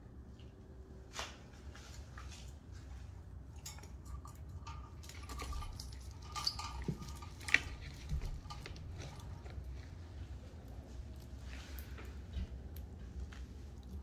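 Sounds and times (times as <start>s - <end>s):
birdcage clicks and clinks: 3.6s - 9.6s.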